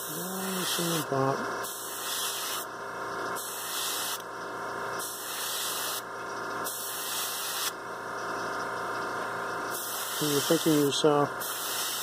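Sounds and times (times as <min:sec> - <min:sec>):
airbrush spraying hiss: 0:00.0 - 0:01.1, 0:01.7 - 0:02.7, 0:03.4 - 0:04.2, 0:05.0 - 0:06.0, 0:06.6 - 0:07.7, 0:09.7 - 0:12.0
steady hum: 0:00.0 - 0:12.0.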